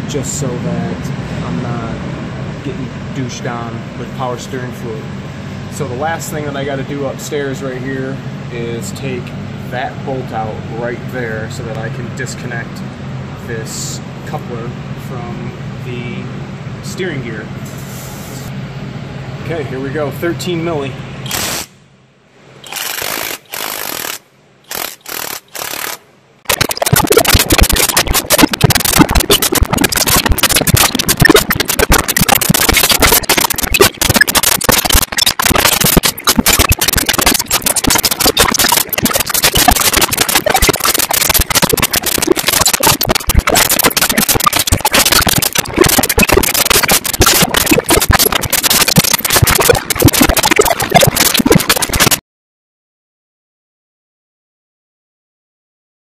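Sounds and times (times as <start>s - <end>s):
cordless power tool spinning: 22.6s - 26.0s
loud crackling noise: 22.7s - 52.2s.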